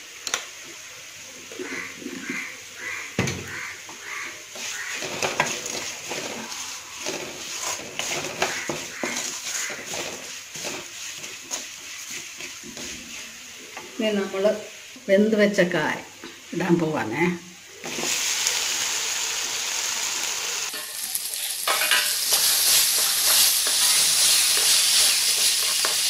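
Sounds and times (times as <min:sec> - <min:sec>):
masala sizzling in oil: 0:00.0 - 0:26.0
bird calling: 0:01.5 - 0:05.2, 0:08.4 - 0:09.9
wooden spatula stirring and scraping: 0:03.6 - 0:14.7, 0:21.7 - 0:26.0.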